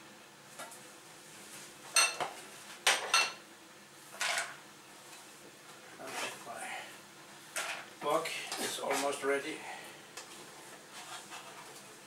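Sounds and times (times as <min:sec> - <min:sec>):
dishes clinking: 0:01.9 - 0:02.3, 0:02.9 - 0:03.4.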